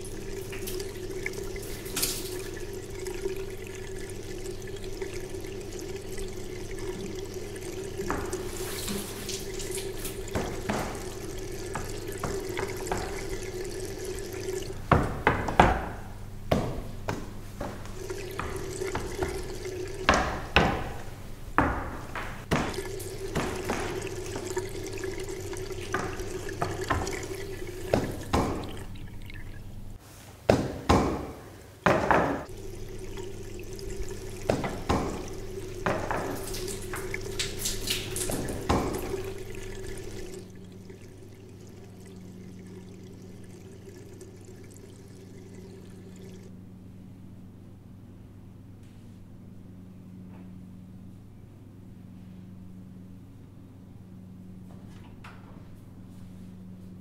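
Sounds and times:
steady low hum: 0:00.0 - 0:15.3, 0:16.0 - 0:30.0, 0:32.5 - 0:57.0
water splashing and dripping: 0:00.0 - 0:15.9, 0:16.5 - 0:21.2, 0:22.0 - 0:30.0, 0:32.4 - 0:46.5.

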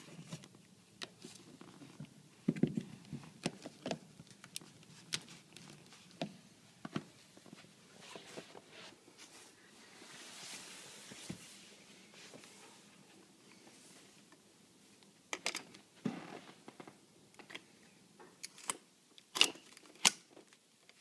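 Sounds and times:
faint hiss: 0:04.7 - 0:18.2.

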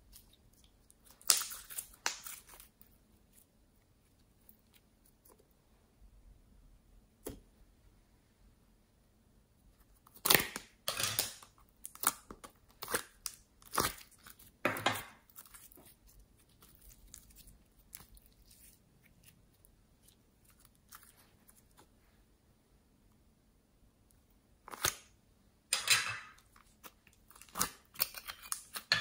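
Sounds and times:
sticky slime crackles and snaps: 0:00.1 - 0:02.8, 0:10.1 - 0:14.6, 0:24.6 - 0:25.2, 0:26.6 - 0:28.9.

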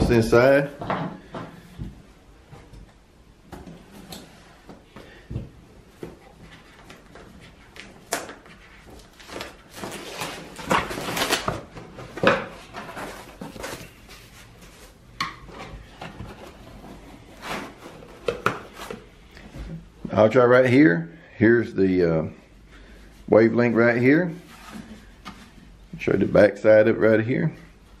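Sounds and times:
plastic wrap crackling and tearing: 0:07.8 - 0:11.8.

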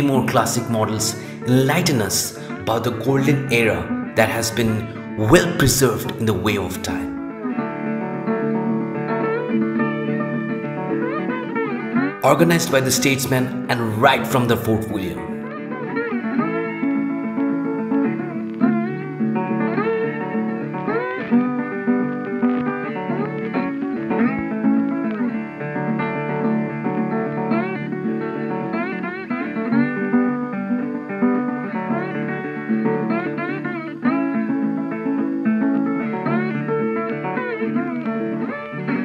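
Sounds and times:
plucked guitar tune with slides: 0:00.0 - 0:39.0.

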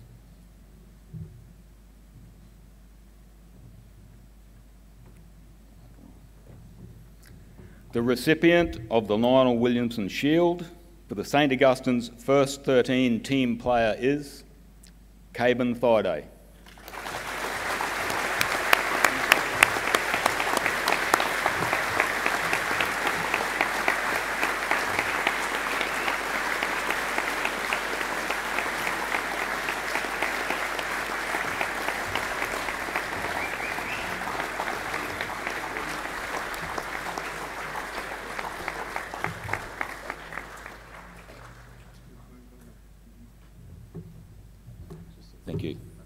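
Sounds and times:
audience applauding: 0:16.7 - 0:42.2.

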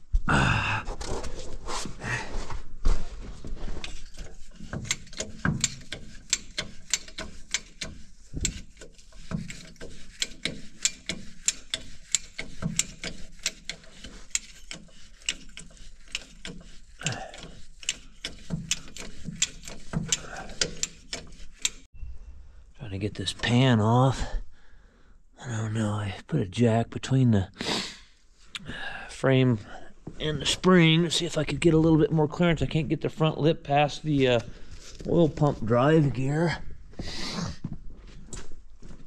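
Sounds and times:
ratchet wrench clicking: 0:03.8 - 0:21.9.

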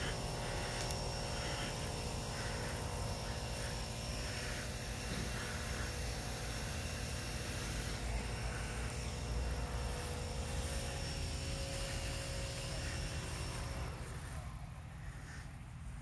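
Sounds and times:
low mechanical drone: 0:00.0 - 0:16.0.

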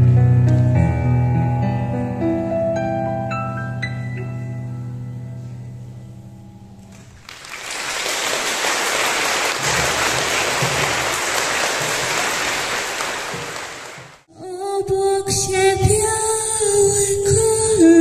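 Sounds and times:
audience applauding: 0:06.9 - 0:14.3.

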